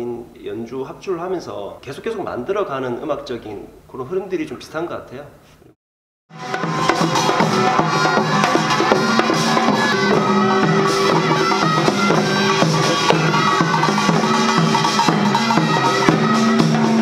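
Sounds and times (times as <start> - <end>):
drums and percussion: 6.3 - 17.0
repeating bass line: 6.3 - 17.0
upbeat ensemble music: 6.3 - 17.0.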